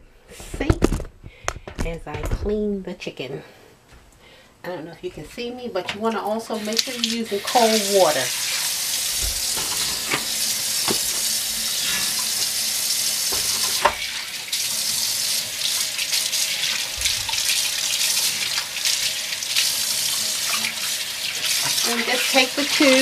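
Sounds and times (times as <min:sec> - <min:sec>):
tap water running into sink: 0:06.6 - 0:23.0.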